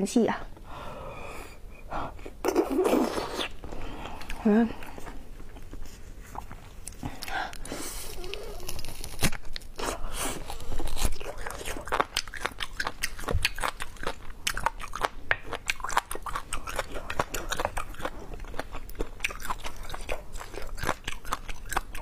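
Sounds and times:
wet chewing clicks and smacks: 0:11.0 - 0:22.0.

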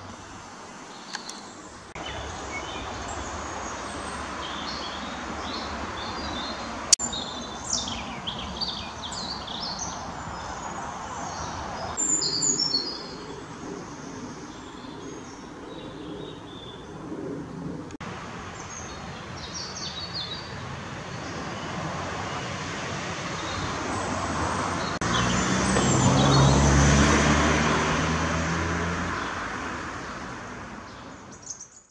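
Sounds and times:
small birds chirping: 0:00.0 - 0:17.2, 0:18.6 - 0:22.4, 0:30.0 - 0:31.9
passing vehicle engine: 0:20.7 - 0:31.4.

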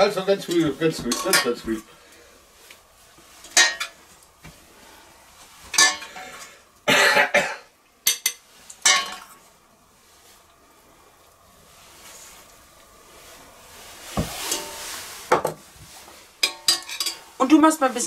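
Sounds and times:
utensil scraping in metal pot: 0:13.8 - 0:15.3.

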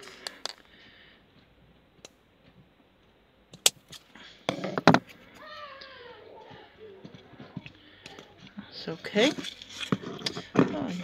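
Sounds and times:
knocks and handling noise: 0:01.4 - 0:05.5, 0:06.4 - 0:11.0.

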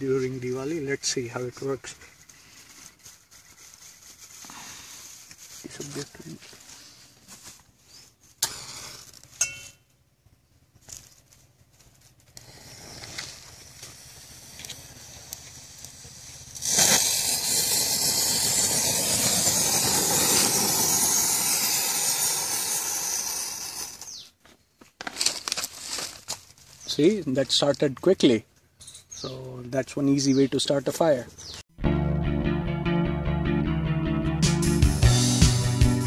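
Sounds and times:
firecracker fuse fizzing: 0:08.4 - 0:09.3, 0:12.2 - 0:24.2
match striking: 0:12.2 - 0:24.2
hiss of spraying sparks: 0:12.3 - 0:24.2.

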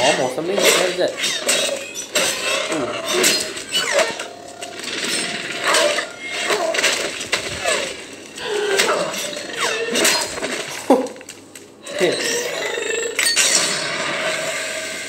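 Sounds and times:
clattering sound effects: 0:00.2 - 0:11.7.

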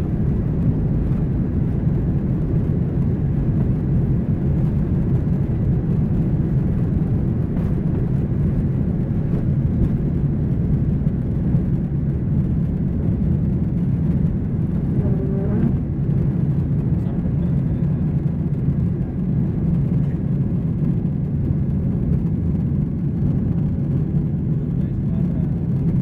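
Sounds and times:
jet engines rumbling: 0:00.0 - 0:26.0.

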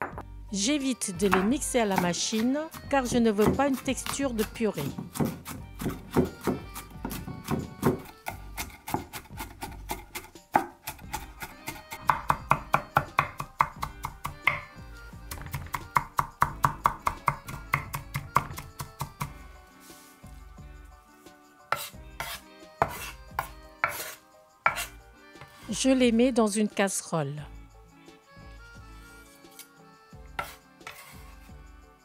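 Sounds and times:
knife chopping on wooden board: 0:01.3 - 0:14.7, 0:15.3 - 0:19.4, 0:21.7 - 0:25.5, 0:30.4 - 0:31.3.

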